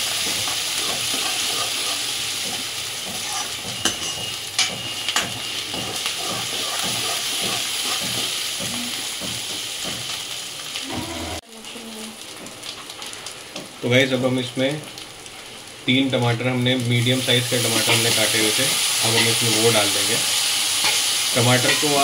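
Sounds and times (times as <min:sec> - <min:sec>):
vegetables sizzling in a pan: 0:00.0 - 0:22.0
ladle stirring and scraping: 0:00.4 - 0:04.2, 0:06.2 - 0:08.3.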